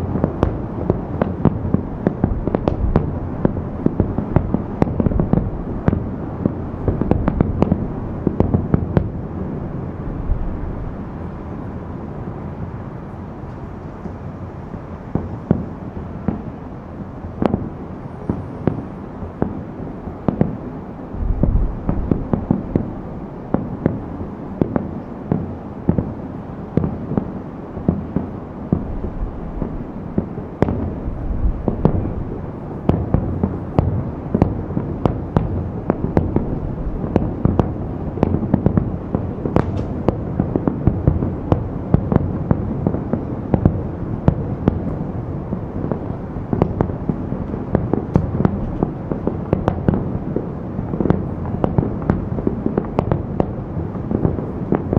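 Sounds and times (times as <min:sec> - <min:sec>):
distant firework bangs: 0:00.0 - 0:11.6, 0:17.4 - 0:54.9
low rumble: 0:10.0 - 0:11.5, 0:21.1 - 0:23.3, 0:30.9 - 0:32.4.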